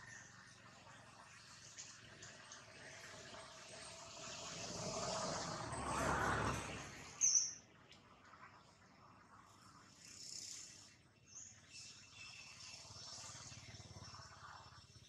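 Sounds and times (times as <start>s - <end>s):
wash of noise: 0.0s - 15.0s
high-pitched bird chirps: 7.2s - 7.6s
faint insect tone: 9.3s - 14.9s.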